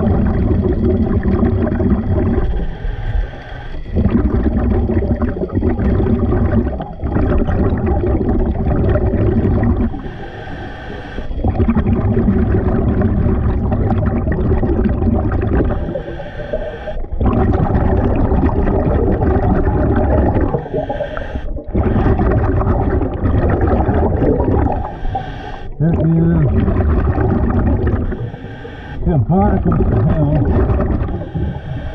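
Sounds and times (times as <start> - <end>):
bubbling underwater exhalations: 0.0 - 2.7, 3.8 - 10.1, 11.2 - 31.9
hissing regulator inhalations: 2.4 - 4.6, 9.8 - 11.8, 15.6 - 17.3, 20.4 - 22.8, 24.6 - 26.0, 27.7 - 29.5, 30.2 - 31.9.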